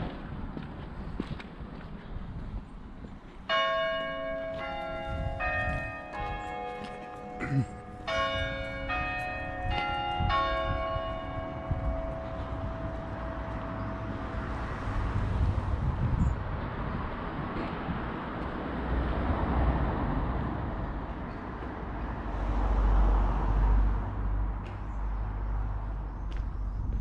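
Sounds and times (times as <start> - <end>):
church bells chiming: 3.5 - 15.1.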